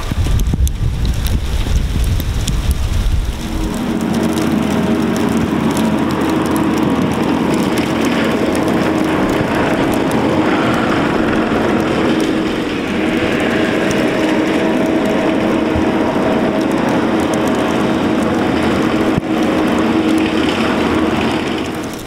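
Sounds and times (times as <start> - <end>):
steady hum: 0.0 - 22.0
track loader diesel engine running: 3.3 - 22.0.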